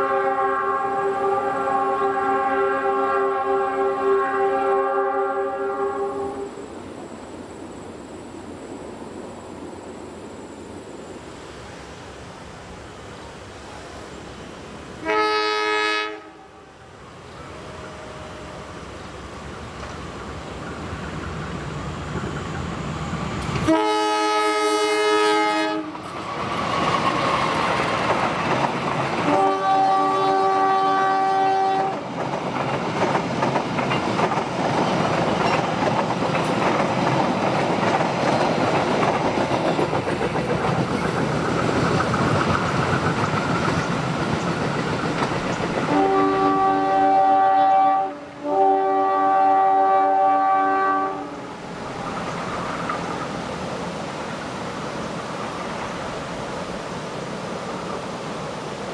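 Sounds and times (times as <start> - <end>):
diesel locomotive horn blasts: 0.0 - 6.6, 15.0 - 18.9, 23.6 - 26.1, 29.2 - 32.0, 45.9 - 51.6
train wheels rumbling on rails: 16.1 - 58.9.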